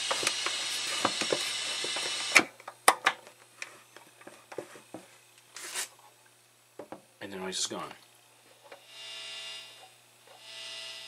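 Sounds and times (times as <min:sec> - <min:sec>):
loud steady hiss from mixer: 0:00.0 - 0:02.6, 0:08.8 - 0:11.0.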